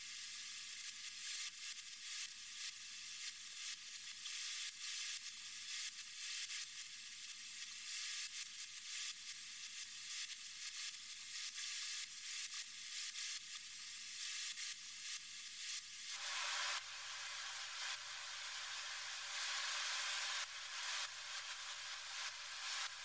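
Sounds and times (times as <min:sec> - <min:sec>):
spray gun hissing: 0:15.6 - 0:23.0.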